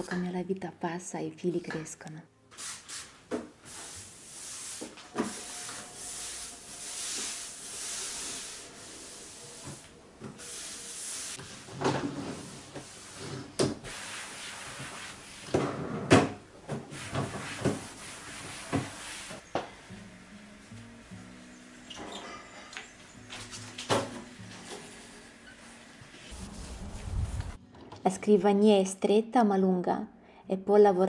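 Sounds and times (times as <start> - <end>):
cloth wiping a desk: 2.5 - 15.5, 16.8 - 19.4, 24.5 - 27.6.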